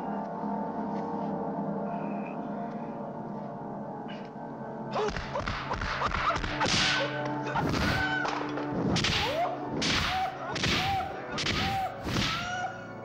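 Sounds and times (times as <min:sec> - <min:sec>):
whipping punch smacks: 0:08.9 - 0:12.5.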